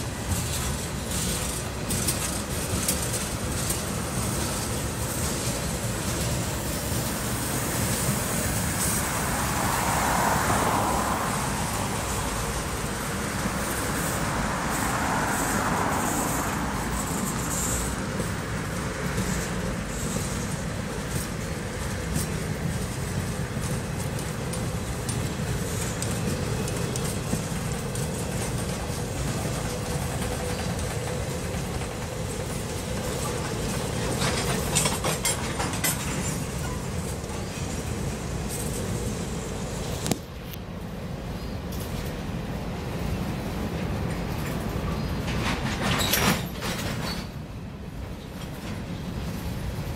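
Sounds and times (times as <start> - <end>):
freight train wheels rumbling: 0.0 - 49.9
sharp clicks of rail: 23.6 - 32.1.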